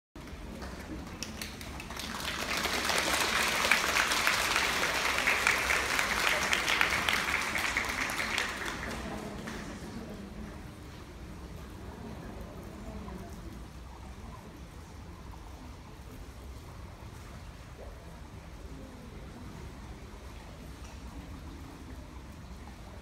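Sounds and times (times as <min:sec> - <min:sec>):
audience clapping: 0:00.2 - 0:10.1.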